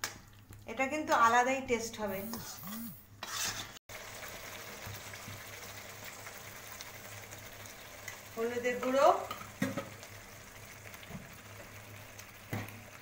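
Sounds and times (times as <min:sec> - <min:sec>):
metal spoon stirring: 0:02.2 - 0:03.8
paste sizzling in a metal pan: 0:03.2 - 0:13.0.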